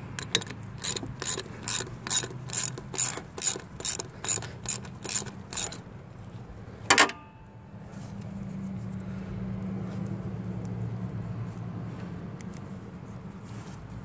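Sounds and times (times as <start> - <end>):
ratchet wrench clicking: 0.0 - 5.9.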